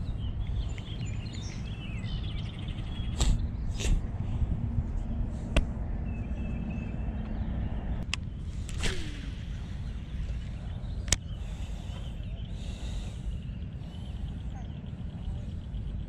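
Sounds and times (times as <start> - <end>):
birds chirping: 0.0 - 16.0
wind rumbling on microphone: 0.0 - 16.0
fishing rod swishes and clicks: 8.5 - 10.5.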